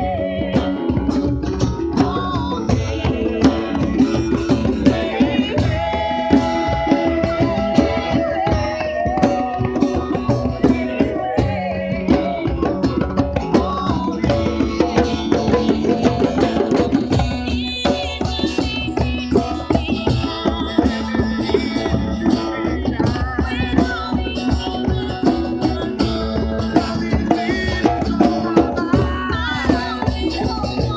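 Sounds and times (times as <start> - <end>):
woman singing into a microphone: 0.0 - 30.9.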